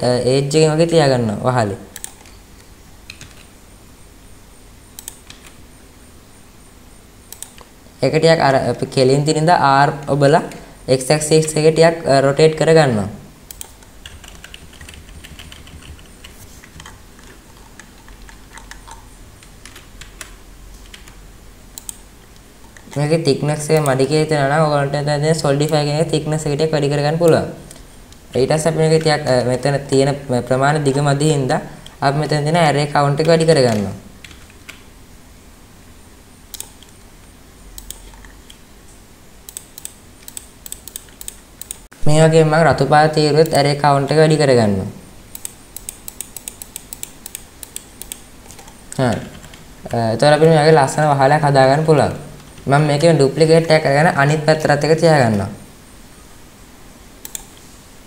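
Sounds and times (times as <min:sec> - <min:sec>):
faint room hiss: 0:00.0 - 0:58.0
mouse and keyboard clicks: 0:02.0 - 0:03.5, 0:07.3 - 0:07.7, 0:13.5 - 0:19.1, 0:36.5 - 0:37.0, 0:37.8 - 0:38.6, 0:39.5 - 0:41.9, 0:45.3 - 0:49.6, 0:57.2 - 0:57.7
keyboard keys clicking: 0:03.1 - 0:03.5, 0:13.5 - 0:21.2
mouse buttons clicking: 0:07.3 - 0:07.7, 0:39.5 - 0:41.9, 0:45.3 - 0:48.8, 0:57.2 - 0:57.7.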